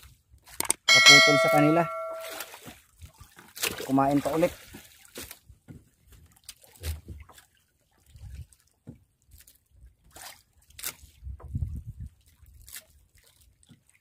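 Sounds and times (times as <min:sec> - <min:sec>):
water splashing and dripping: 0:01.0 - 0:11.2.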